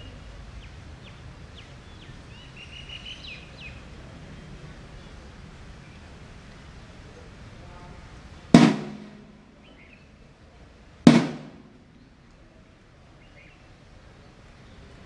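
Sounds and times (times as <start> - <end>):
parade drum beats: 8.6 - 9.6, 11.1 - 11.8.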